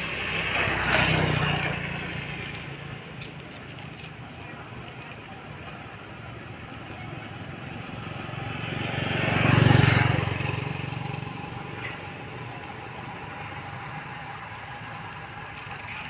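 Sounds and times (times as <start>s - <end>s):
vehicle driving past: 8.0s - 16.0s.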